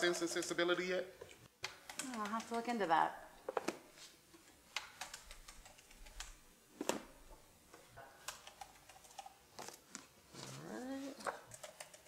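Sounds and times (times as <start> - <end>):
computer keyboard typing: 1.6 - 2.8, 4.8 - 6.4, 8.2 - 9.4, 11.4 - 12.0.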